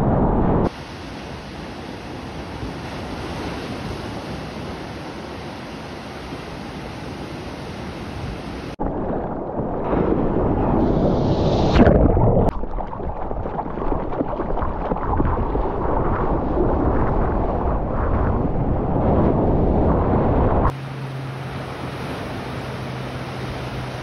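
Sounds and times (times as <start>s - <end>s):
wind buffeting microphone: 0.0s - 0.7s, 14.3s - 20.8s
surf and rushing water: 0.0s - 24.0s
loud water splash: 8.7s - 17.4s.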